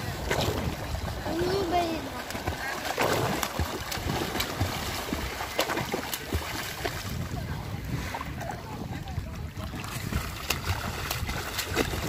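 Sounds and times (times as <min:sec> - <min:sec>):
swimmers splashing in water: 0:00.0 - 0:12.0
wind buffeting microphone: 0:00.0 - 0:12.0.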